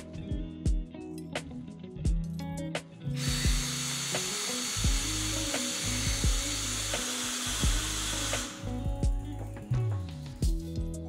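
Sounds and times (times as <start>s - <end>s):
background music with drum beat: 0.0s - 11.0s
cordless drill running: 3.2s - 8.8s.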